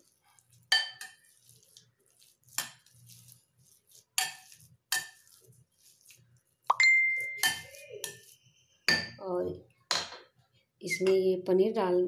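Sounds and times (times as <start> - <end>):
masher clinking against glass bowl: 6.7 - 8.3.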